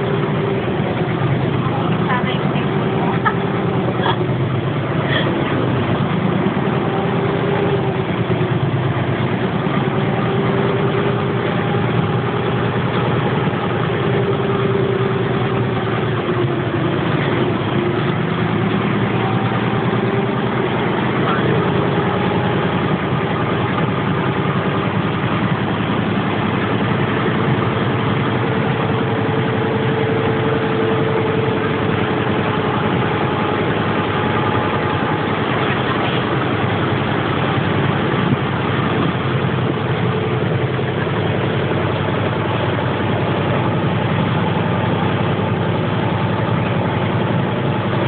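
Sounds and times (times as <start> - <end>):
boat engine running: 0.0 - 48.0.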